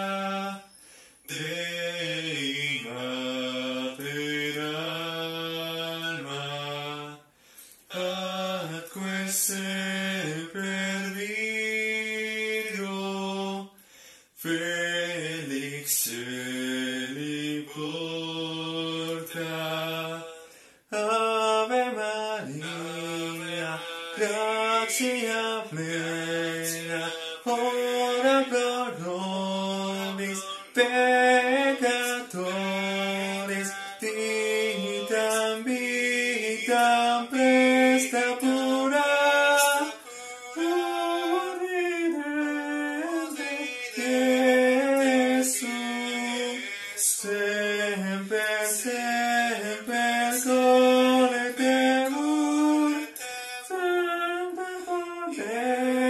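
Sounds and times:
man singing unaccompanied: 0:00.0 - 0:13.8, 0:14.4 - 0:56.0
singer breathing: 0:00.6 - 0:01.3, 0:07.3 - 0:07.9, 0:13.8 - 0:14.4, 0:20.3 - 0:20.9, 0:53.2 - 0:53.7.

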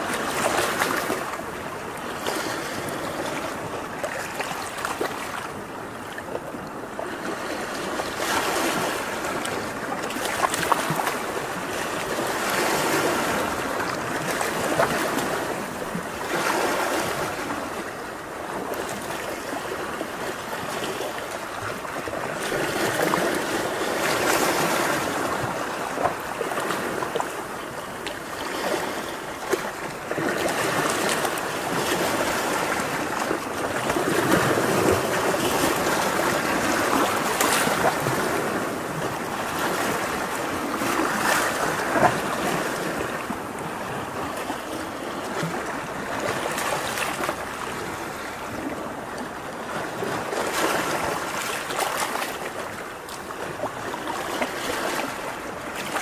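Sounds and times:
ocean waves breaking: 0:00.0 - 0:56.0.

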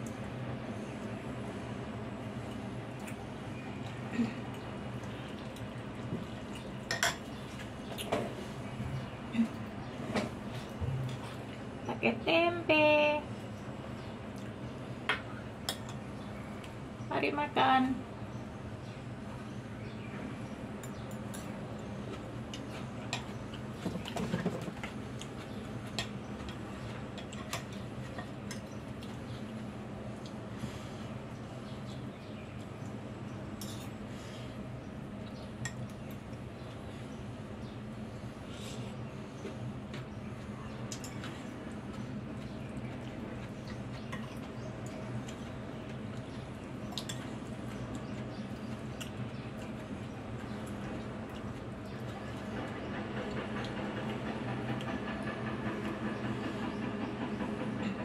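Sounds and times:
steady low hum: 0:00.0 - 0:58.0
eating sounds: 0:40.4 - 0:55.0.

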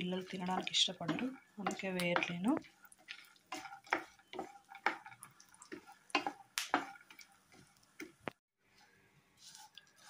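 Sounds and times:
nuts frying in fat: 0:00.0 - 0:08.5
wooden spatula scraping a pan: 0:00.0 - 0:10.0.

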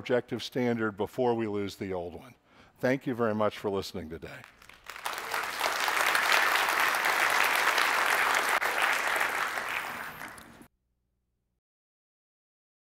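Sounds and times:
audience applauding: 0:04.4 - 0:10.7.

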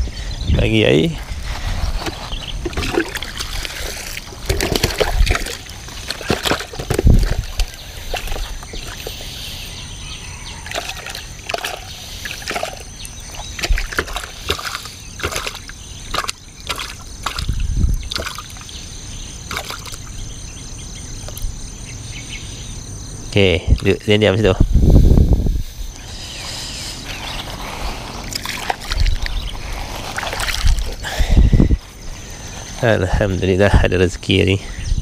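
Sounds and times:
water sloshing in plastic tub: 0:01.4 - 0:09.3, 0:10.6 - 0:18.8, 0:19.5 - 0:20.2, 0:27.9 - 0:31.0
knocks of tub: 0:04.4 - 0:08.9.

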